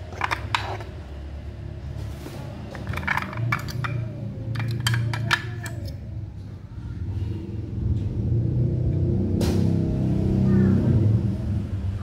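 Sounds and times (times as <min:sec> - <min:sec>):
plastic boxes clattering: 0:00.0 - 0:00.9, 0:02.7 - 0:05.8.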